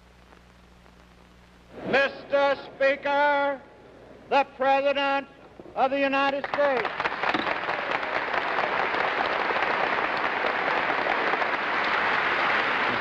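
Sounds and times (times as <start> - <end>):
crowd applauding: 6.3 - 13.0.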